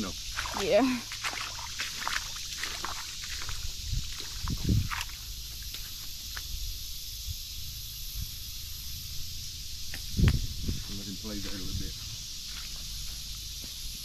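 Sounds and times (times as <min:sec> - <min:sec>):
fish splashing in water: 0:00.0 - 0:05.8
wind rumble on microphone: 0:02.6 - 0:05.4, 0:06.4 - 0:08.8, 0:09.8 - 0:12.2.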